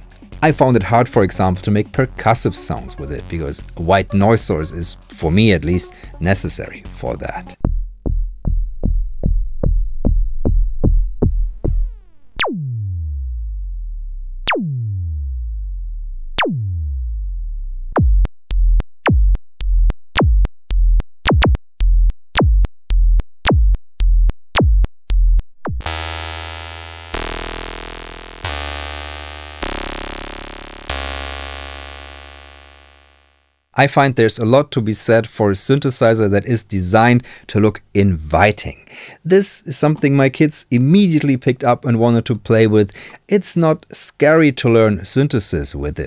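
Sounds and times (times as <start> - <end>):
synthesizer bass thumps: 7.6 - 33.5
buzzy synth tone: 17.9 - 33.7
booming synth hits sweeping down: 25.6 - 33.4
synth hits with high ping: 25.6 - 33.4.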